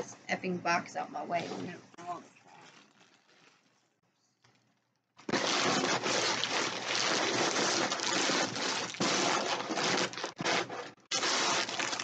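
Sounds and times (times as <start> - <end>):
plastic packing crinkling: 2.4 - 12.0.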